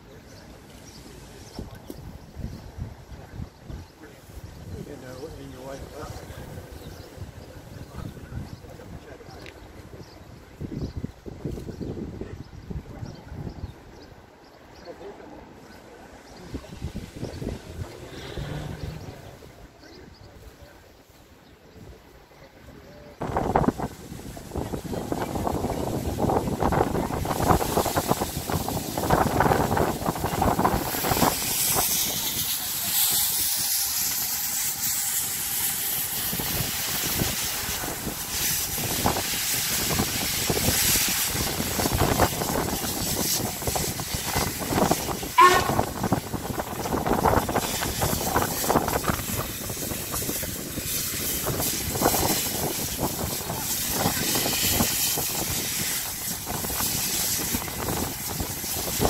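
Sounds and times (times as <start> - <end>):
steam locomotive running slowly: 0.0 - 59.0
steam hissing: 15.4 - 19.6, 23.2 - 59.0
locomotive chuffs and clanks: 27.1 - 59.0.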